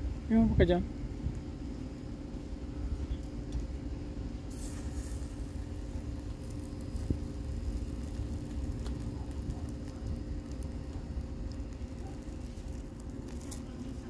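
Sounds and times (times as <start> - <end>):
low machine hum: 0.0 - 14.0
steak crackling on grill: 1.0 - 14.0
tongs clicking on grill grate: 11.5 - 13.8.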